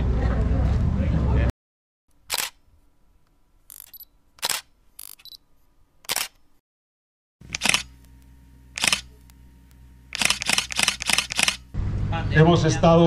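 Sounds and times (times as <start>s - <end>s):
camera shutter clicking: 2.2s - 2.6s, 3.7s - 5.4s, 6.0s - 6.4s, 7.4s - 8.0s, 8.8s - 9.4s, 10.1s - 11.7s.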